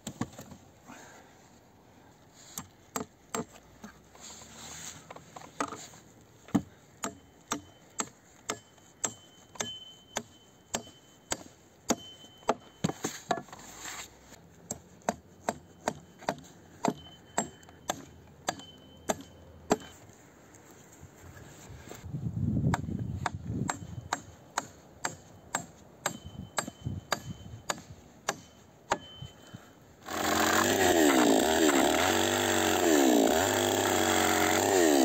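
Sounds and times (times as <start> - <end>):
hatchet chopping log: 2.6 - 3.6, 6.5 - 13.4, 14.7 - 19.9, 22.7 - 29.1, 30.0 - 35.0.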